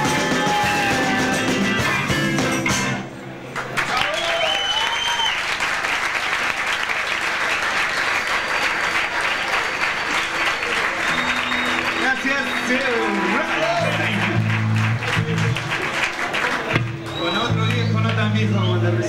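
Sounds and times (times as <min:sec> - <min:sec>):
person shouting: 0:00.0 - 0:01.6
audience applauding and cheering: 0:00.0 - 0:02.3, 0:03.4 - 0:18.4
musical instruments playing: 0:00.0 - 0:03.5, 0:11.1 - 0:16.0
whistle: 0:04.1 - 0:05.4, 0:11.0 - 0:13.1, 0:17.0 - 0:18.0.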